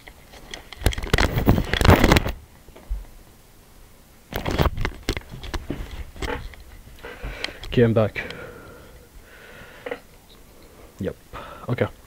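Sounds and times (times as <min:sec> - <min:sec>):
headset rubbing and rustling: 0:00.0 - 0:02.4, 0:04.3 - 0:07.7.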